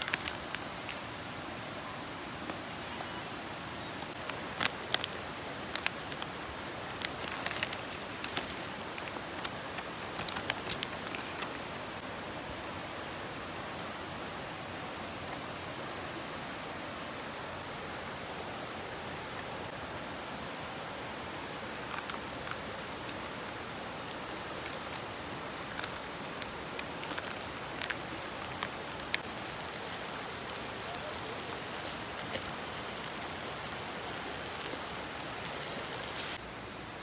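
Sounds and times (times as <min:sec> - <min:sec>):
river rushing: 0:19.0 - 0:37.0
wood fire crackling: 0:24.0 - 0:36.4
curry paste sizzling in hot oil: 0:29.2 - 0:36.4.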